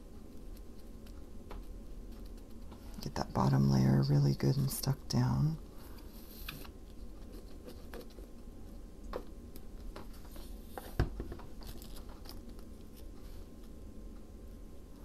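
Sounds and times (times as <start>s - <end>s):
paper rustling: 9.8s - 13.4s.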